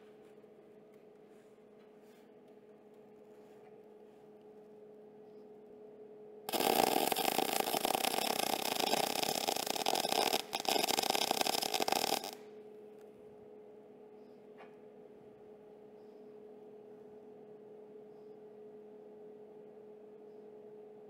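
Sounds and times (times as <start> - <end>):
welder arc buzzing: 6.5 - 12.4.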